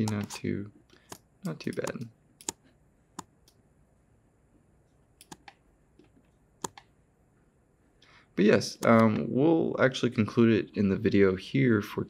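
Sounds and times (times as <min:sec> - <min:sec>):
computer mouse clicks: 0:00.0 - 0:02.6, 0:05.2 - 0:06.9.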